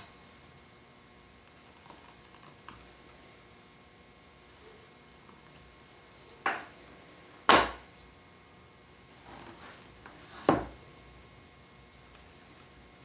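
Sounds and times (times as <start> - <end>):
faint scraping and handling: 1.5 - 8.2, 9.0 - 10.8
wooden boards knocking: 7.5 - 7.8.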